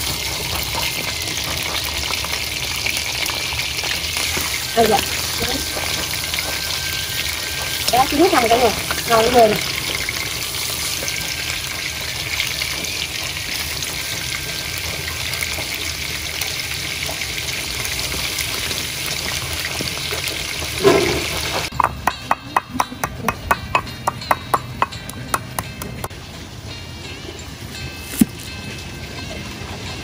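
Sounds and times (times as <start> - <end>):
fish sizzling in hot oil: 0.0 - 21.8
pestle pounding in ceramic bowl: 20.8 - 26.1.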